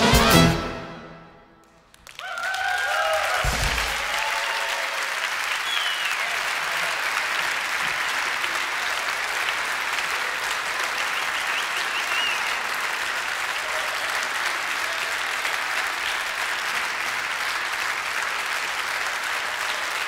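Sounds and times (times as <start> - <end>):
audience applauding: 1.6 - 20.0
short high whistle: 5.6 - 6.2, 11.2 - 12.5.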